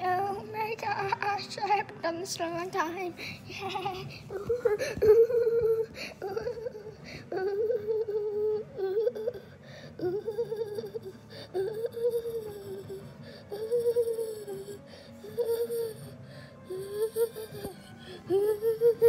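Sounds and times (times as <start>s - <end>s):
person humming a tune: 10.0s - 19.0s.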